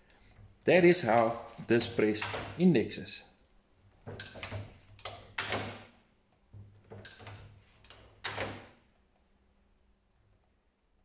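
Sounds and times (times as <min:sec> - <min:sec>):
metallic clunks and clicks of press: 0:02.1 - 0:02.6, 0:04.0 - 0:06.0, 0:06.6 - 0:08.8.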